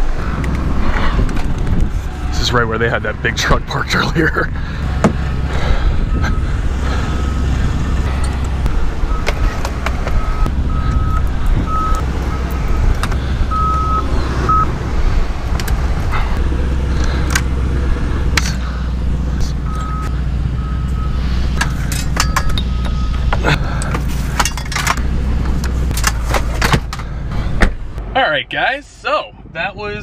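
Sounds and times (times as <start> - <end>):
low rumble: 0.0 - 28.2
backup alarm beeping: 4.9 - 14.7, 19.5 - 23.8
gear clinking and knocking: 21.6 - 27.1.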